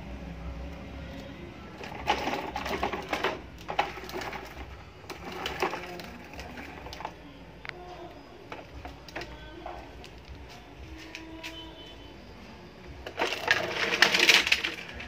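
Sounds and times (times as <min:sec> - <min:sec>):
plastic toy wheels rattling on stone: 0:01.8 - 0:07.2, 0:08.5 - 0:10.3, 0:13.0 - 0:15.0
small toys clattering: 0:01.8 - 0:07.2, 0:08.5 - 0:11.3, 0:13.0 - 0:15.0.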